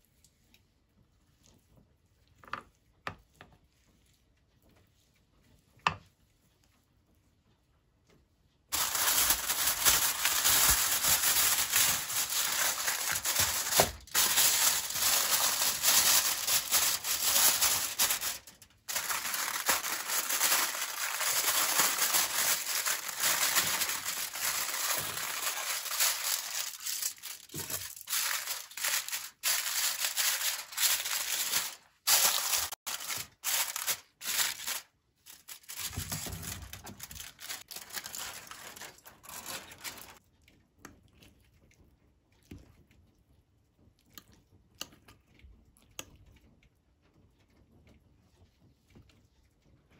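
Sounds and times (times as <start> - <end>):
crinkling handling noise: 8.7 - 40.2.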